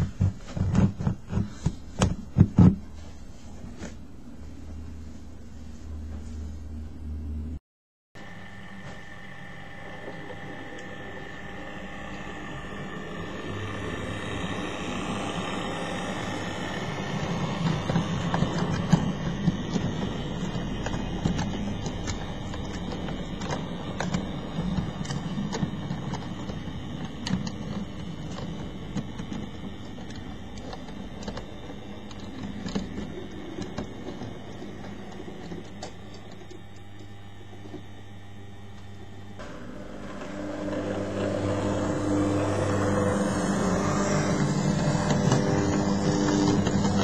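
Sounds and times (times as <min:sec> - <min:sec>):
model locomotive motor whirring: 0:08.2 - 0:47.0
wheels clicking over rail joints: 0:13.5 - 0:36.8, 0:40.0 - 0:47.0.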